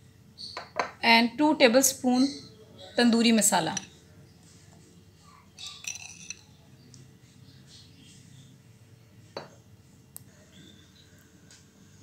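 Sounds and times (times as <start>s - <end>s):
spoon clinking against a bowl: 3.6s - 4.0s, 5.6s - 6.6s.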